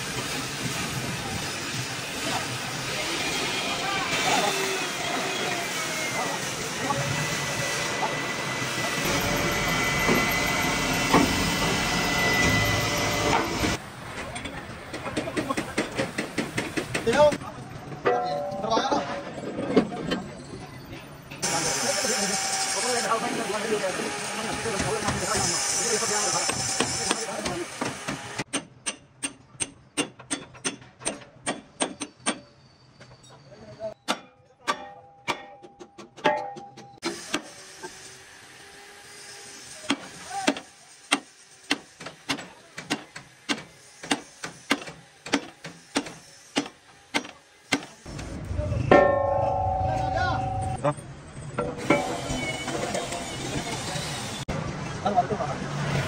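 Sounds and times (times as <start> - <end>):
machinery whine: 3.0 - 13.8
deep machinery rumble: 48.1 - 50.8.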